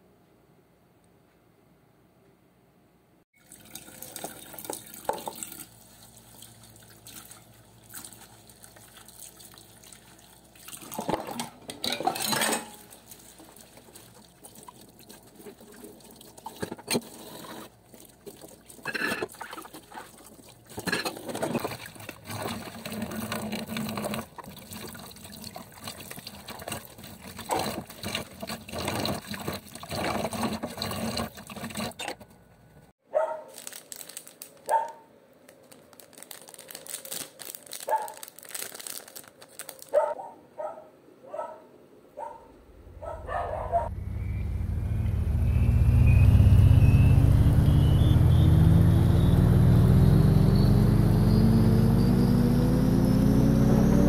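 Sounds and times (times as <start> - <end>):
tap water running into sink: 3.4 - 5.7.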